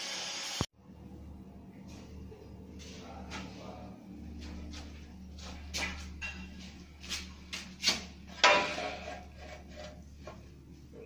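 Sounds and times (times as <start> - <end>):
steady low hum: 0.8 - 11.0
knocks and clatters: 7.8 - 10.6.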